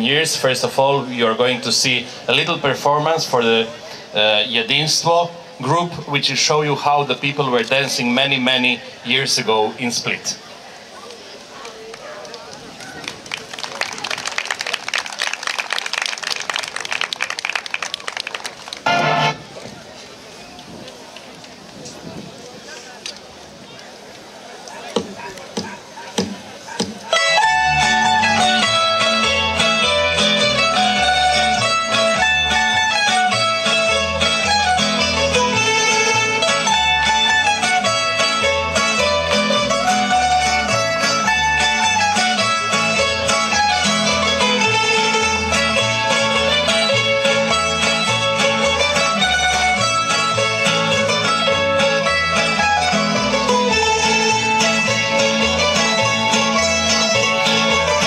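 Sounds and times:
folk dance music on plucked strings: 0:16.3 - 0:19.7, 0:24.9 - 0:58.0
steady bass line: 0:18.9 - 0:19.4, 0:27.2 - 0:58.0.

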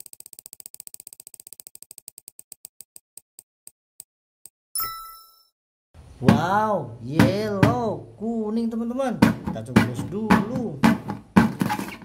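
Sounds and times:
short ringing tone: 0:04.8 - 0:05.5.

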